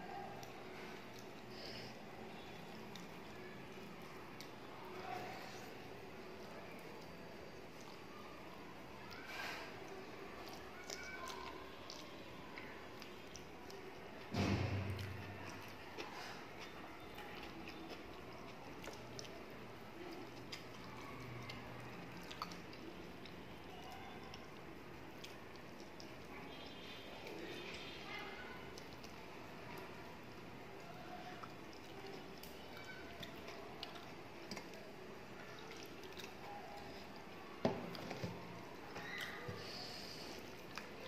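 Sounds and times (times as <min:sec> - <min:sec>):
wet squishing of food by hand: 0:00.0 - 0:41.0
chewing with mouth clicks: 0:00.3 - 0:14.3, 0:14.9 - 0:41.0
sharp knock: 0:14.4 - 0:15.1.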